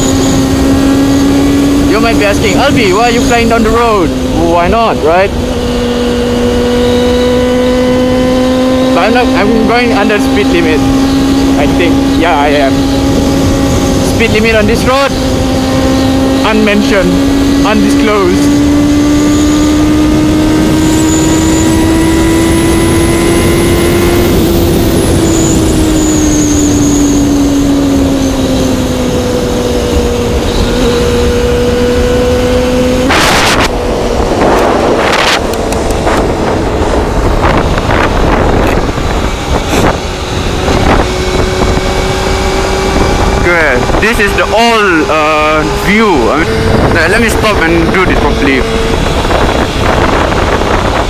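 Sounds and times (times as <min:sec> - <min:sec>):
motorcycle engine at high revs: 0:00.0 - 0:51.0
wind roar on microphone: 0:00.0 - 0:51.0.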